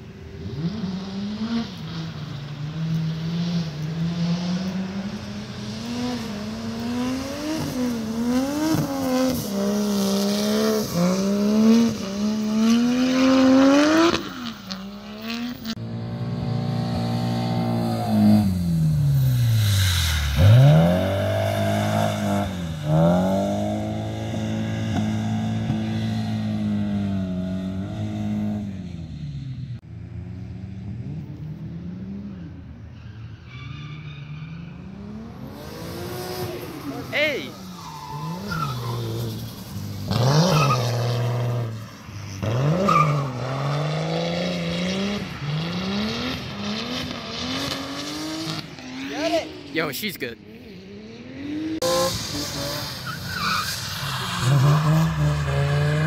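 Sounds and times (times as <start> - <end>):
car engines revving hard: 0.0 - 32.8, 34.1 - 56.0
tyre squeal: 32.4 - 41.5, 52.7 - 56.0.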